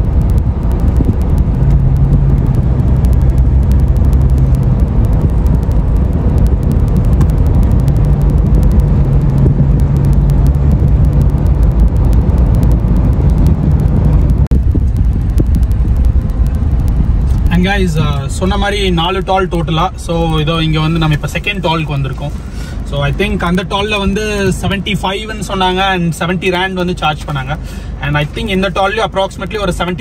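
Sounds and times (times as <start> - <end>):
car engine and road drone: 0.0 - 30.0
low hum: 0.0 - 30.0.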